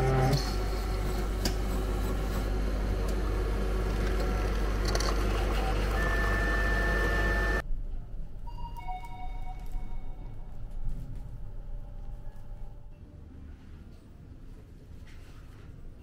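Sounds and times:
vending machine motor hum: 0.0 - 7.6
steady machine whine: 0.0 - 7.7.

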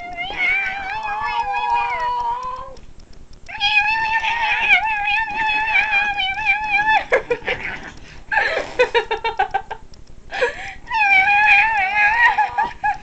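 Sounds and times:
cat yowling: 0.0 - 2.8, 3.5 - 7.8, 10.9 - 12.8.

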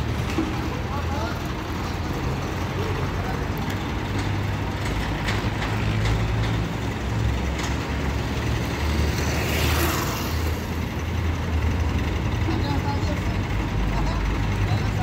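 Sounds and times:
diesel crane engine running: 0.0 - 15.0.

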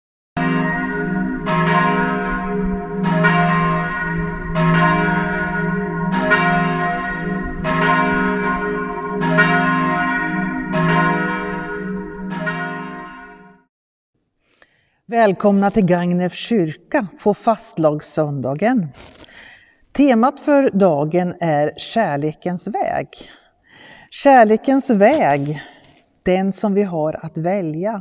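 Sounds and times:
church bells ringing: 0.4 - 13.7.

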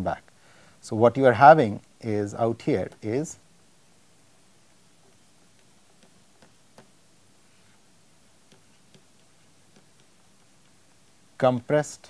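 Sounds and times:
stylus tapping on pen tablet: 5.0 - 7.0, 8.3 - 11.2.

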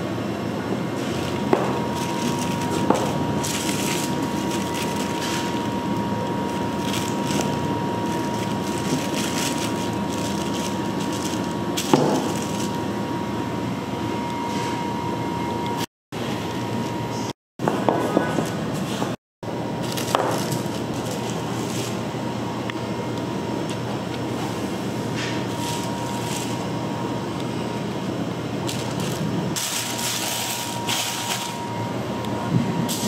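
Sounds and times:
even hum: 0.0 - 33.0
high machine whine: 0.0 - 33.0.

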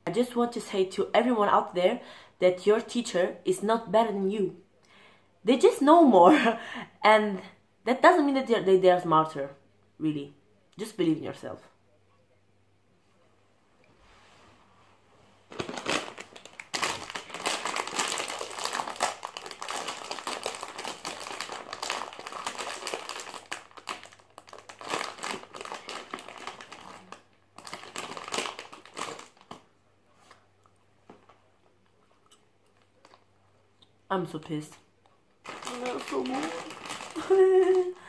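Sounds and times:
snack wrapper crinkling: 15.5 - 29.7, 35.4 - 38.0.

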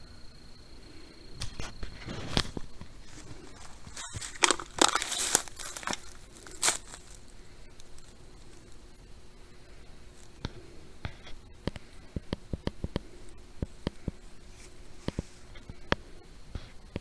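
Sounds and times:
footsteps crunching through dry leaves: 2.1 - 8.8.

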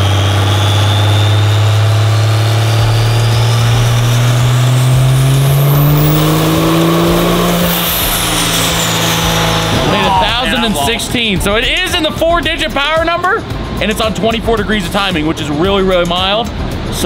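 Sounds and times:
high turbo whistle: 0.0 - 12.0
diesel engine revving at full power: 0.0 - 17.0.

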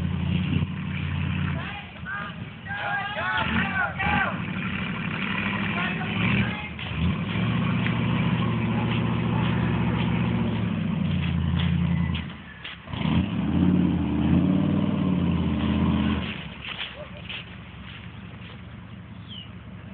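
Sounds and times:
engine revving hard under load: 0.0 - 1.8, 3.3 - 16.6.

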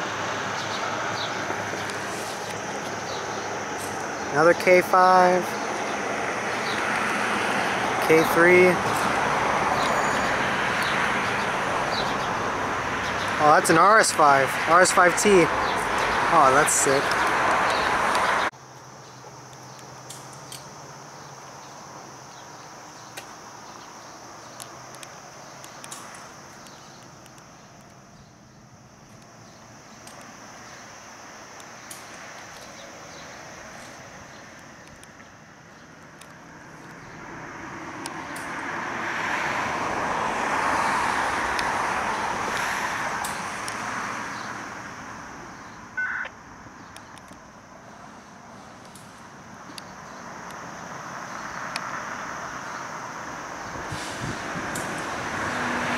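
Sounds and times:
vehicle passing by: 0.0 - 18.5, 36.3 - 46.3, 49.9 - 55.9
insect chirring: 0.0 - 55.8
high-pitched chirp: 46.0 - 46.3.

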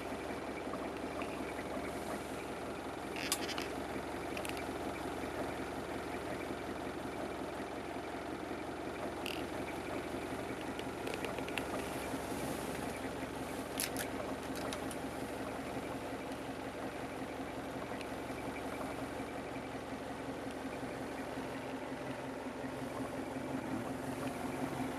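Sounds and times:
diesel engine idling: 0.0 - 24.9
sharp clicks: 10.5 - 12.0.

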